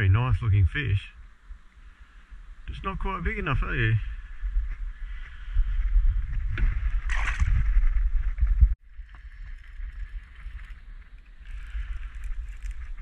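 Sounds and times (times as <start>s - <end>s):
water splash and slosh: 6.6s - 8.2s.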